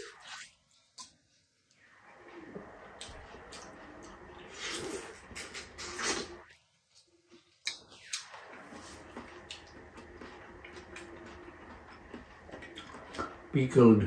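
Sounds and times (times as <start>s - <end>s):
chewing: 2.9s - 13.5s.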